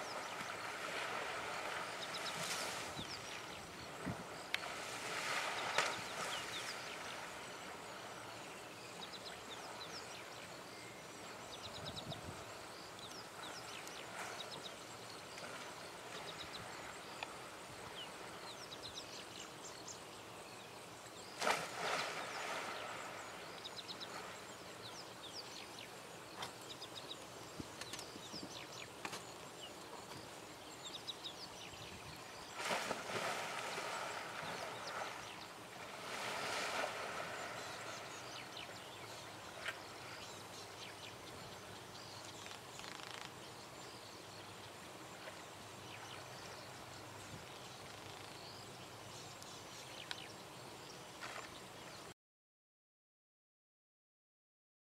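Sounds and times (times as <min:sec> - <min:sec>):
elephants splashing in water: 0:00.1 - 0:07.8, 0:32.5 - 0:38.2.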